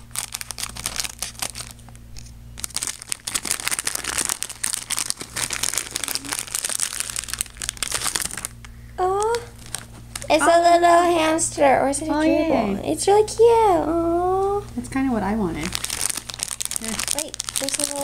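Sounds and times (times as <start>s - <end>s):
plastic packet crinkling: 0.0s - 10.4s, 15.6s - 18.0s.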